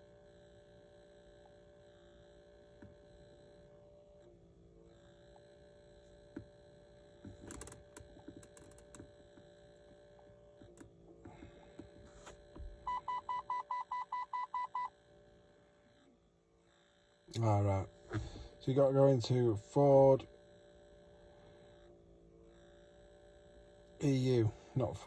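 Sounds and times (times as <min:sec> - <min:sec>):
faint electrical hum: 0:00.0 - 0:25.0
short electronic beeps: 0:12.9 - 0:14.9.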